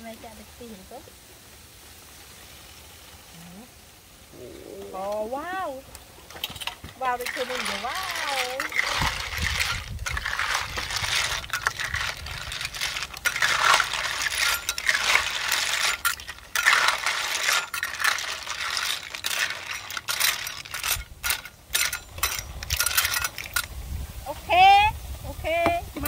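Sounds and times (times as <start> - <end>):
metal spatula scraping: 6.2 - 23.8
shells clinking in a metal wok: 6.2 - 23.8.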